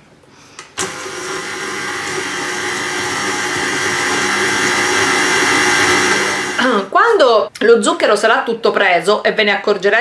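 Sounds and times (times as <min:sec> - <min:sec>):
stand mixer whisking: 0:00.8 - 0:06.6.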